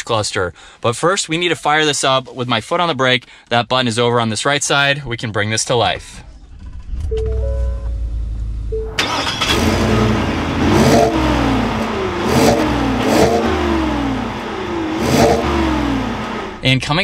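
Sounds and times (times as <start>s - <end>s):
engine idling inside cab: 6.2s - 16.6s
car engine revving: 6.5s - 16.7s
short chime: 7.1s - 8.2s.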